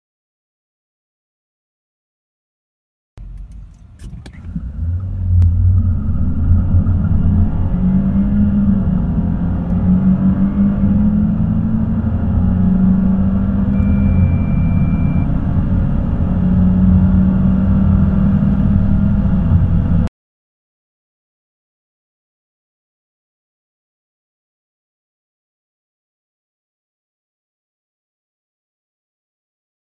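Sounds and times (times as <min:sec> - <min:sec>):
car engine accelerating: 0:03.2 - 0:20.1
short high beep: 0:13.7 - 0:15.4.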